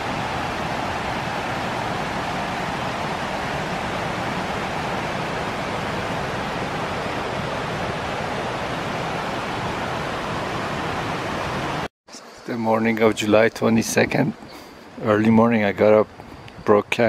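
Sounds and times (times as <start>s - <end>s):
creek rushing over rocks: 0.0s - 11.9s.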